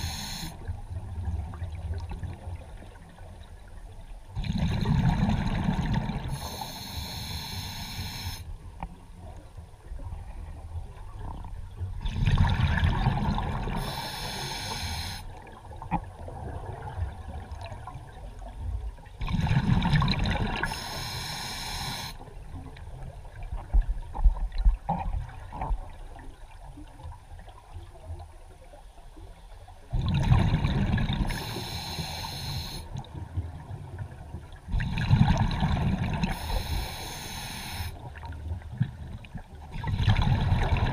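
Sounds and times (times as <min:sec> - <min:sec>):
scuba regulator breathing: 0:00.0 - 0:00.6, 0:06.3 - 0:08.5, 0:13.8 - 0:15.3, 0:20.6 - 0:22.2, 0:31.3 - 0:32.9, 0:36.3 - 0:38.0.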